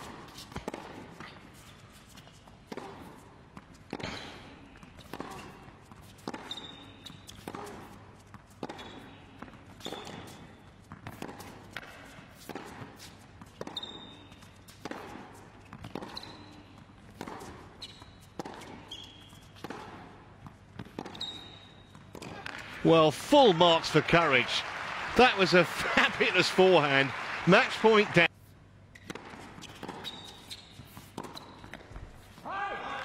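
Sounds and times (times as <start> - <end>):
shoes squeaking on court: 0.1 - 22.7, 28.9 - 32.4.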